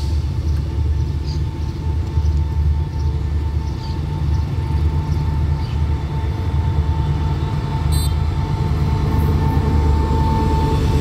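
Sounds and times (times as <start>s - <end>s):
locomotive engine rumble: 0.0s - 11.0s.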